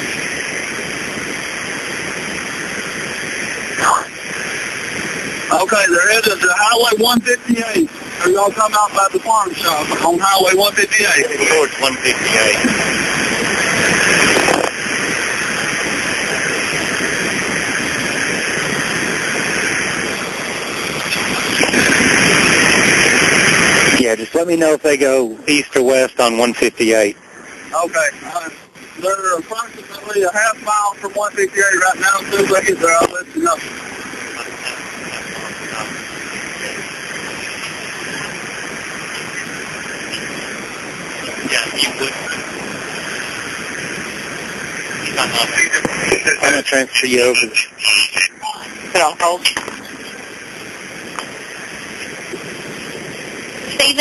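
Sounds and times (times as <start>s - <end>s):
airplane cabin engine and wind noise: 0.0s - 54.0s
person speaking: 5.5s - 13.0s, 41.2s - 43.3s, 45.0s - 50.2s.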